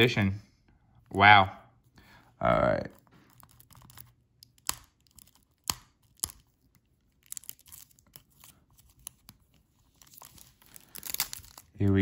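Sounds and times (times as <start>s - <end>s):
plastic crinkling and clicks: 3.2s - 12.0s
plastic wrap peeled and torn: 3.2s - 12.0s
sharp crackling snaps: 3.8s - 6.5s, 10.7s - 12.0s.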